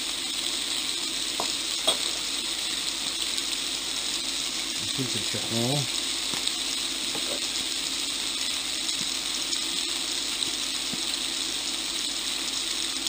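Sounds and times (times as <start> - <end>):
food sizzling in a frying pan: 0.0 - 13.0
small oil pops: 1.3 - 2.2, 6.2 - 7.5.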